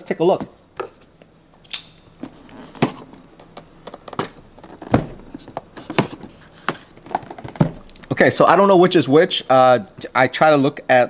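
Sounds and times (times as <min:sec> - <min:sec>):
boxes tapping and knocking: 0:02.2 - 0:08.1.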